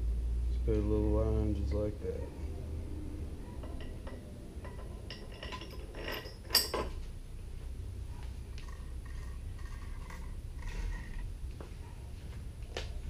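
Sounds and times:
metal bolts and washers clinking: 3.4s - 7.1s.

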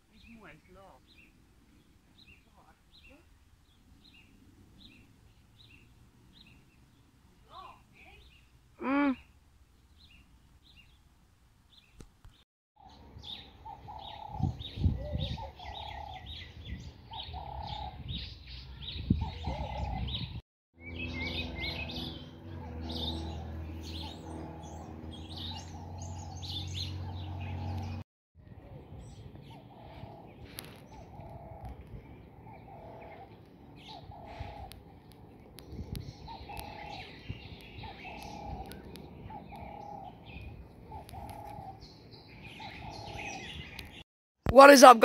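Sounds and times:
songbirds chirping rapidly: 0.0s - 44.0s.

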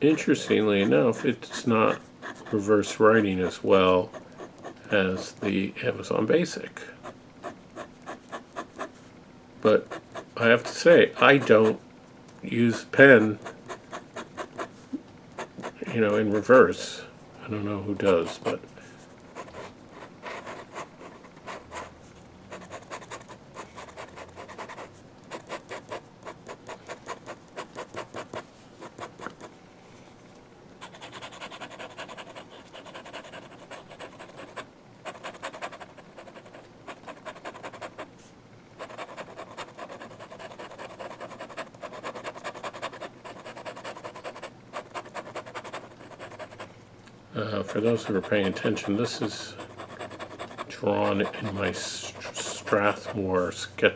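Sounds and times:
pen nib scratching paper: 0.0s - 3.0s, 4.0s - 5.6s, 7.0s - 8.9s, 9.8s - 11.8s, 13.2s - 14.7s, 15.4s - 16.8s, 18.0s - 18.6s, 19.3s - 21.9s, 22.5s - 29.5s, 30.8s - 38.1s, 38.8s - 46.7s, 47.6s - 53.2s.

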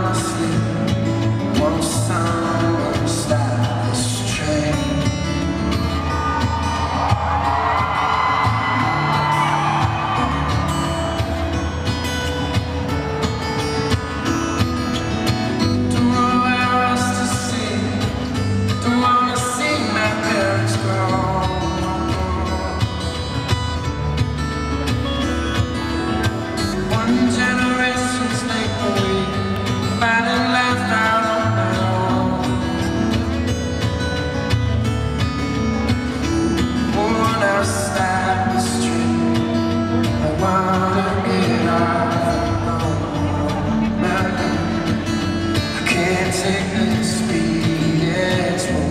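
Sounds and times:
man singing: 0.0s - 11.6s, 14.9s - 23.4s, 26.1s - 33.5s, 35.8s - 48.9s
fingerpicked acoustic guitar: 0.0s - 48.9s.

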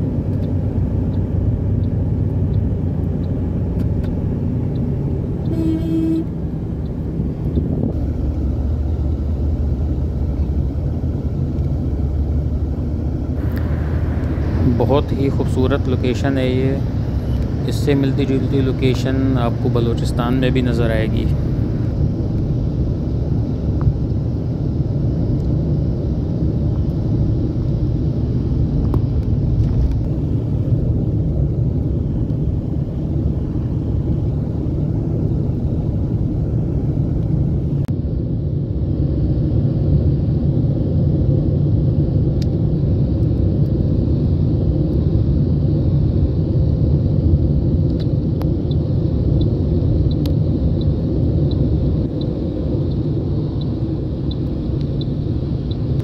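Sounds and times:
car road and engine rumble: 0.0s - 56.0s
light regular ticking: 0.3s - 5.6s, 47.9s - 56.0s.

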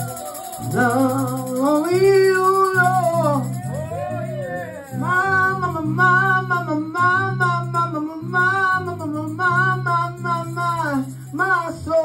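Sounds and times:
woman singing gospel song: 0.6s - 3.5s
sustained low instrumental chords: 0.6s - 12.0s.

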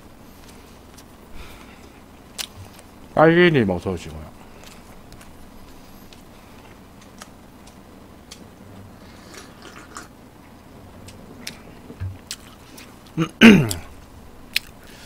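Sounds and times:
chewing: 0.4s - 2.9s, 4.4s - 15.0s.

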